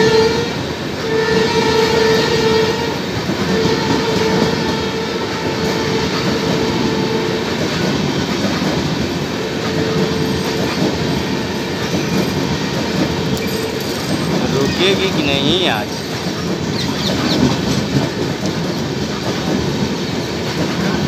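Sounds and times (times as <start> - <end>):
horn-like high tone: 0.0 - 7.5, 9.3 - 13.6
train coaches rumbling past: 0.0 - 21.0
wheel clatter over rail joints: 7.5 - 21.0.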